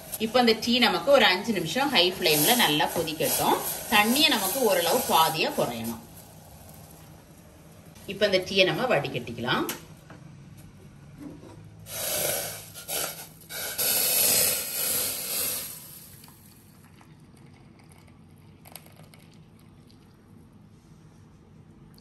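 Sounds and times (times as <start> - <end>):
tea pouring into a glass cup: 16.2 - 20.4.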